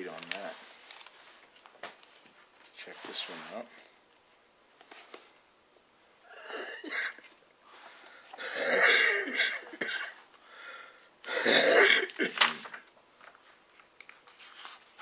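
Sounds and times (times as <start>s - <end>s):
man coughing: 8.4s - 10.2s, 11.3s - 12.5s.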